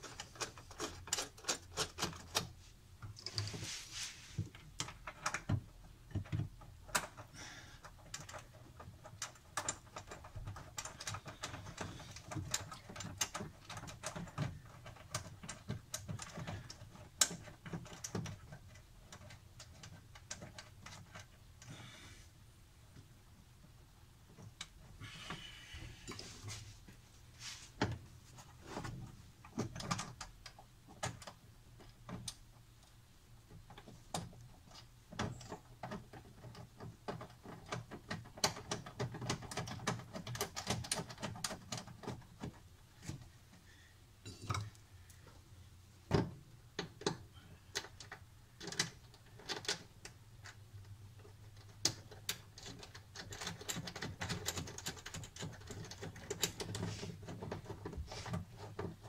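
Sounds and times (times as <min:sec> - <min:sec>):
rustling: 0:00.0 - 0:05.5, 0:24.3 - 0:37.7, 0:51.2 - 0:59.0.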